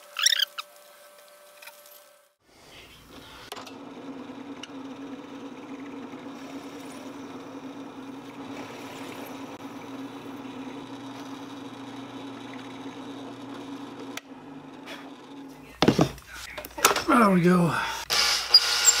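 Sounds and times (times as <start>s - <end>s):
drill press motor humming: 3.0s - 16.0s, 18.0s - 19.0s.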